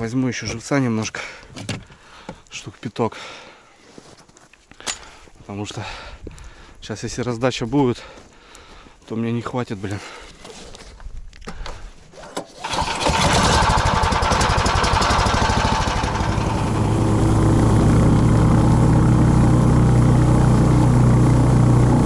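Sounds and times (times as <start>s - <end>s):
small petrol engine starting and idling: 12.4s - 22.0s.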